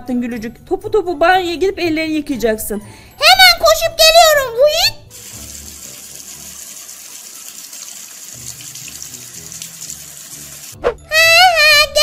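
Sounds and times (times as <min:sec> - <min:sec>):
faucet running into sink: 0:05.1 - 0:10.8.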